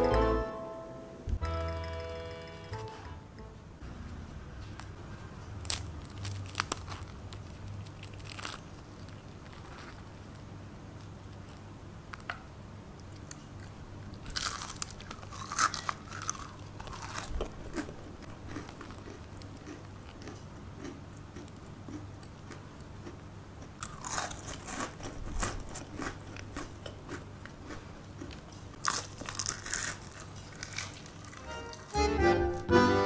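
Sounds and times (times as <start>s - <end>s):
crisp crepes cracking: 5.6s - 10.4s.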